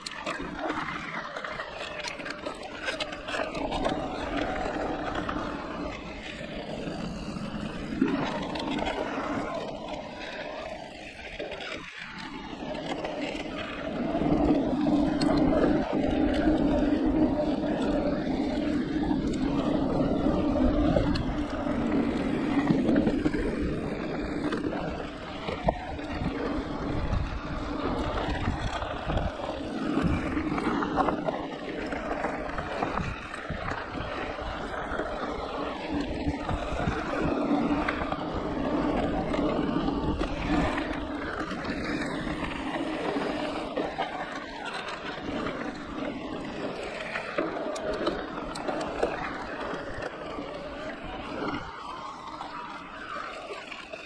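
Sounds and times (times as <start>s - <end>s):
bike tyres rolling on gravel: 0.0s - 54.0s
wind on microphone: 13.4s - 44.3s.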